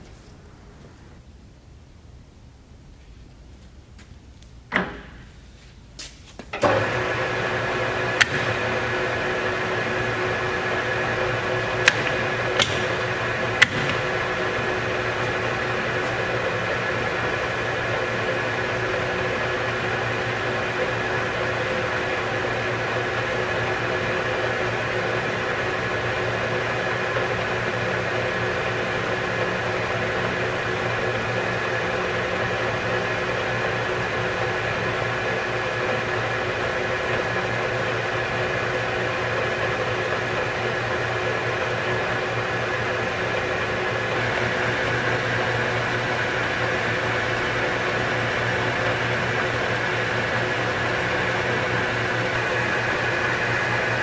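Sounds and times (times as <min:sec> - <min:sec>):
lathe humming and whining: 0:06.6 - 0:54.0
lathe control click: 0:08.2 - 0:08.7, 0:11.8 - 0:14.1.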